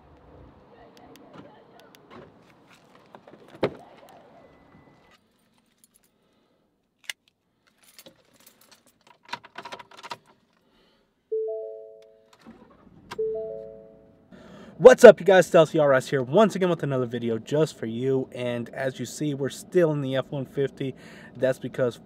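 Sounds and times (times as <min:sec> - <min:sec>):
keys jangling: 0:07.6 - 0:09.3
dashboard electronic chime: 0:11.3 - 0:12.2, 0:13.2 - 0:14.1.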